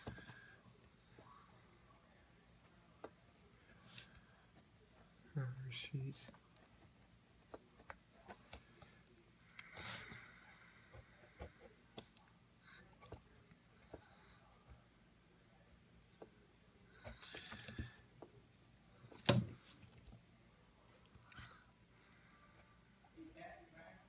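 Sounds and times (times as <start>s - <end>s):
pen scratching on paper: 6.6s - 8.5s.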